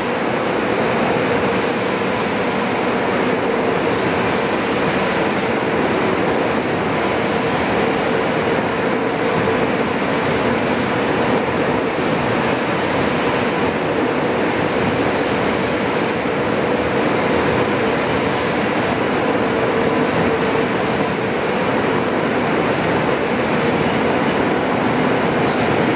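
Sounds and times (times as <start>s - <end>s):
constant machine hum: 0.0s - 25.9s
printing press machine running: 0.0s - 25.9s.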